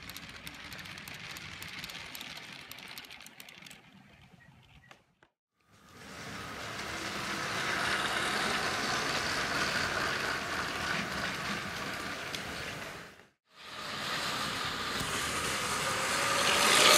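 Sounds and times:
toy train wheels rattling on track: 0:00.0 - 0:04.0.

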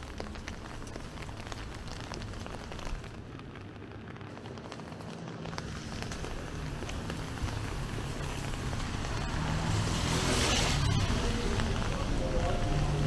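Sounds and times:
tyre hiss on wet road: 0:04.5 - 0:13.0.

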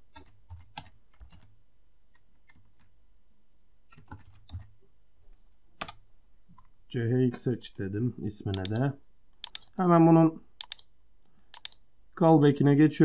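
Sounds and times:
keyboard typing: 0:00.1 - 0:01.5, 0:08.5 - 0:08.8, 0:09.4 - 0:09.7, 0:10.6 - 0:10.9, 0:11.5 - 0:11.8
sharp click: 0:08.5 - 0:08.8, 0:09.4 - 0:09.8, 0:10.6 - 0:10.9, 0:11.5 - 0:11.8.

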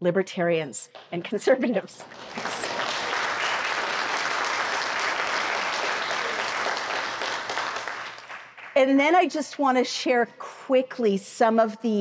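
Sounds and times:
audience applauding: 0:01.9 - 0:08.8.

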